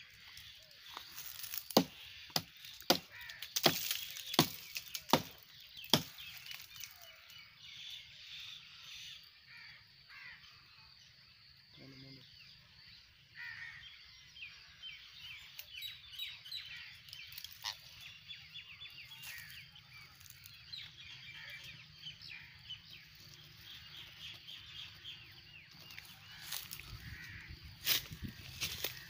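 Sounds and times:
parakeets chirping: 17.5s - 18.1s.

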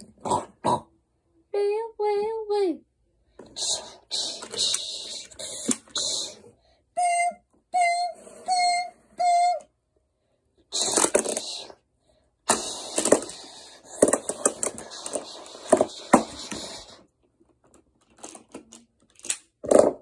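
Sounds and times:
plastic tiles clattering: 10.8s - 11.6s, 12.5s - 16.9s, 17.6s - 20.0s.

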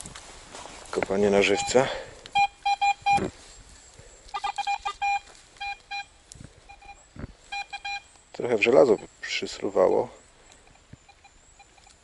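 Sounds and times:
metal detector beeping: 1.4s - 3.3s, 4.3s - 9.3s, 10.5s - 12.0s.

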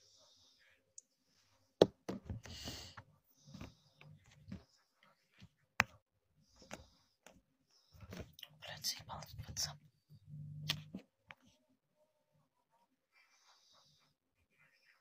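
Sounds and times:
faint knocks and rustles: 1.4s - 8.4s.

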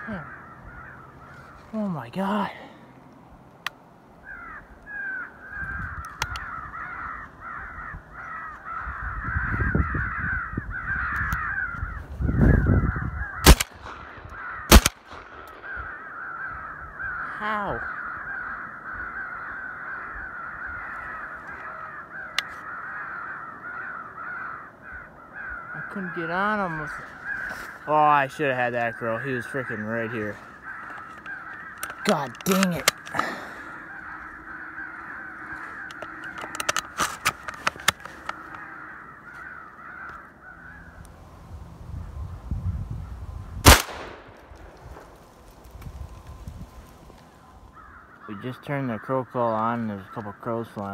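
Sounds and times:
crows cawing: 0.0s - 41.2s, 43.0s - 50.9s
sharp clicks: 6.0s - 6.5s, 13.4s - 15.6s, 30.8s - 33.2s, 35.8s - 38.6s, 43.6s - 46.0s.

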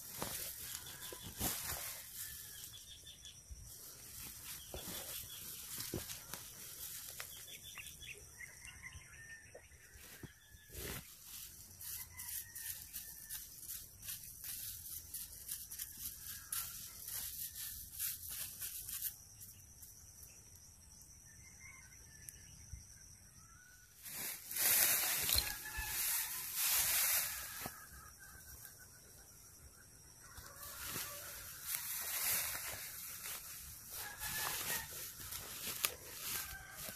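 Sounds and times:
straw rustling and crackling: 0.0s - 2.6s, 24.1s - 27.8s, 30.4s - 36.9s.

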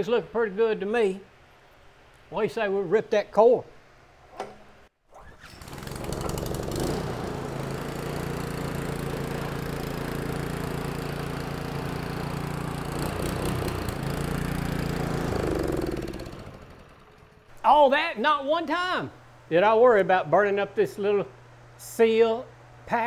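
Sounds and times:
small gasoline engine running: 5.5s - 17.5s.

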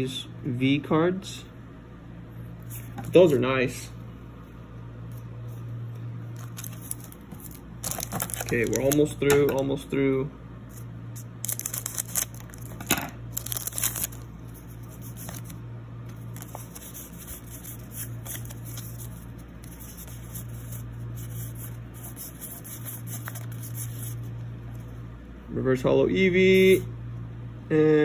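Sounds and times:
steady low hum: 0.0s - 28.0s
foil wrapper tearing: 6.4s - 9.1s, 11.3s - 14.3s
cards rustling and sliding: 6.4s - 9.6s, 10.7s - 24.9s.

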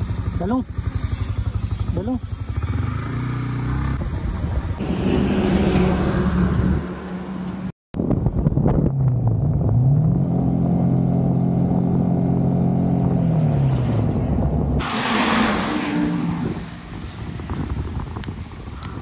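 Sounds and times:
motorcycle engine running: 0.0s - 5.2s.

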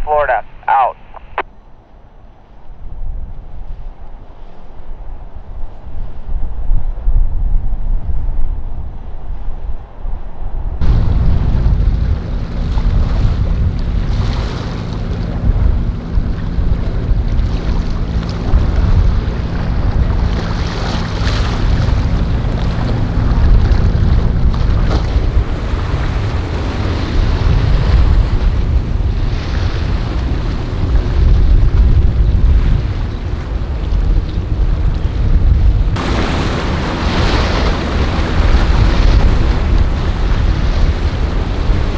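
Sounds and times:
waves washing and splashing: 0.0s - 0.9s, 10.8s - 41.9s
wind rumble on microphone: 0.0s - 41.9s
motorboat engines running: 10.8s - 41.9s.

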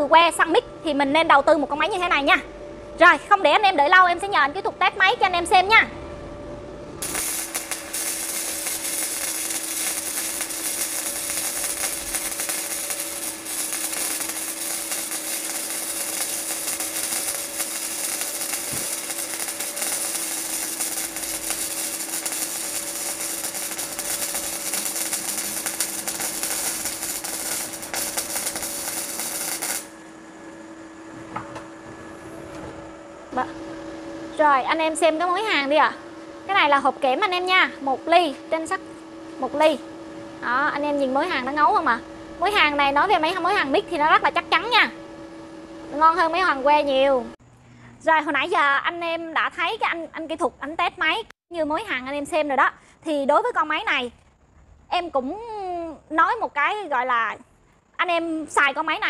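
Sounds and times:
welding arc crackling: 7.0s - 30.2s, 33.3s - 47.4s.

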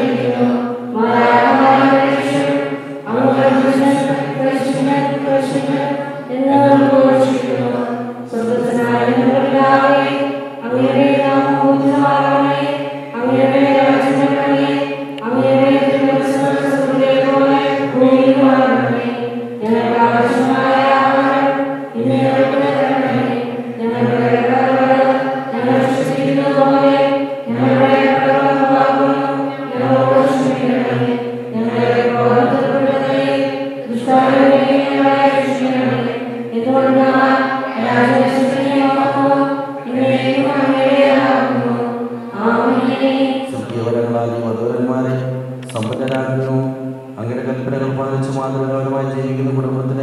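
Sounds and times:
man chanting a prayer: 0.0s - 21.3s, 27.5s - 33.2s, 43.4s - 50.0s.

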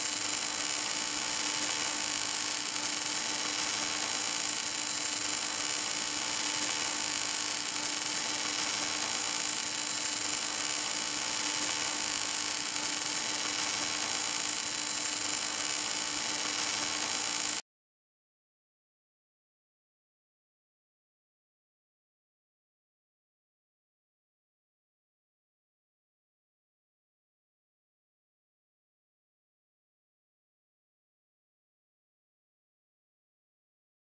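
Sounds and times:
welding arc hissing and crackling: 0.0s - 17.6s.

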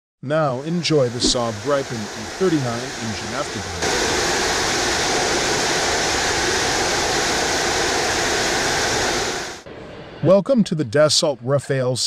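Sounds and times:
jet engine afterburner roar: 0.5s - 9.7s.

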